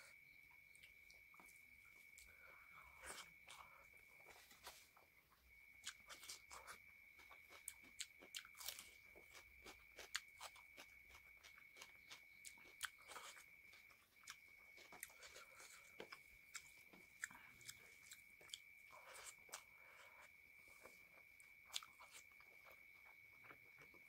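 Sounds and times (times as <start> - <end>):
faint high-pitched whine: 0.0 - 24.0
close chewing with mouth clicks: 0.6 - 4.8, 5.8 - 24.0
crisp crunches of raw onion: 7.5 - 11.9.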